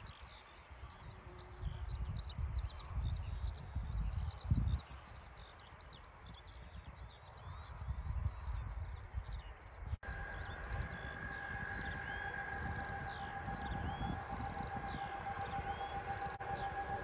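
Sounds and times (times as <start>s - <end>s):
wind buffeting microphone: 0.0s - 17.0s
distant electric train whine: 10.0s - 17.0s.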